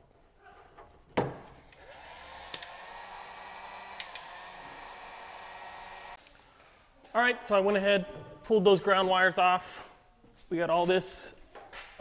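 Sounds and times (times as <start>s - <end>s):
heat gun fan whine: 1.8s - 6.2s
heat gun switch click: 2.5s - 2.8s, 3.9s - 4.4s.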